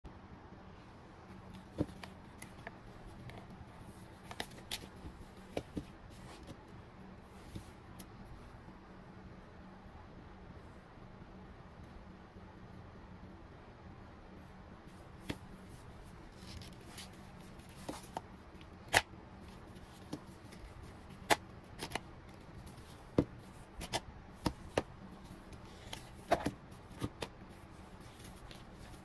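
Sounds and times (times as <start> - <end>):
soft rubbing: 24.4 - 29.0.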